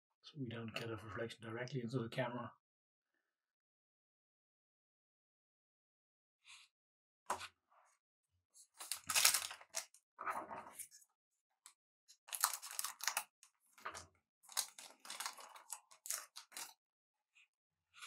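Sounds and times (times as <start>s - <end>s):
card packaging crinkling: 8.8s - 10.0s, 12.3s - 13.3s, 14.5s - 16.7s.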